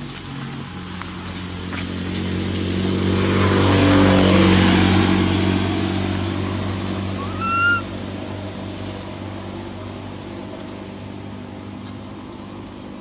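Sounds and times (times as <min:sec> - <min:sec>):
road noise: 0:00.0 - 0:13.0
vehicle engine hum passing: 0:00.0 - 0:13.0
baby monkey squealing: 0:07.1 - 0:07.9.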